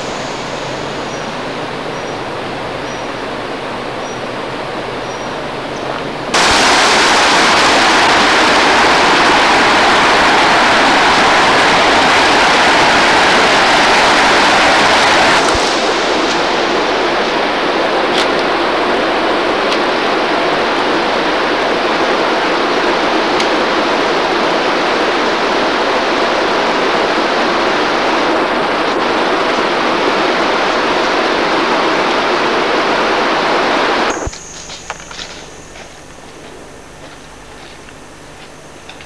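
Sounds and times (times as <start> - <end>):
stream rushing over rocks: 4.4 - 35.4
faint high chirp: 34.1 - 36.0.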